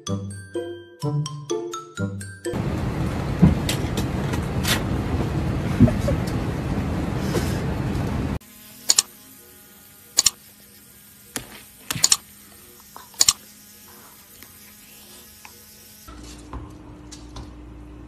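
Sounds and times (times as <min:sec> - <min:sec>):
aircraft cabin noise: 0:02.6 - 0:09.0.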